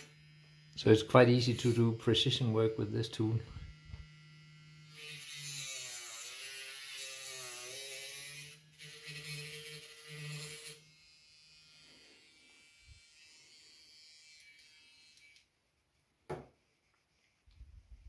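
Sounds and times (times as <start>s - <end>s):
small cutting disc cutting plastic: 0.0s - 10.9s, 14.2s - 15.5s.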